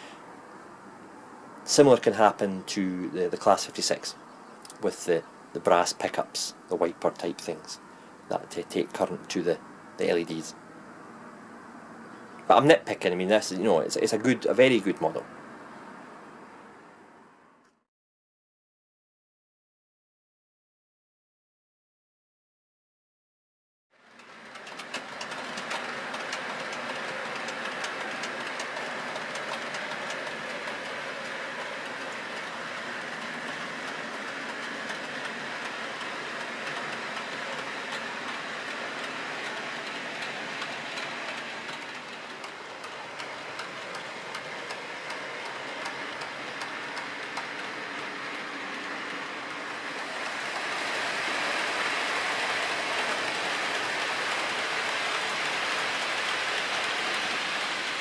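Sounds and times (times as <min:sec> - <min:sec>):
model train wheels rolling: 0:24.0 - 0:58.0
clicks over rail joints: 0:24.2 - 0:58.0.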